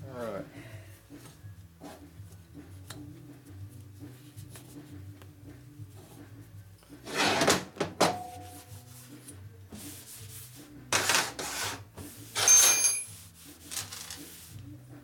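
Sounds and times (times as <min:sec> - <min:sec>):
rag wiping steel workbench: 0:07.0 - 0:14.6
faint metallic rings: 0:08.1 - 0:08.7, 0:12.4 - 0:13.2.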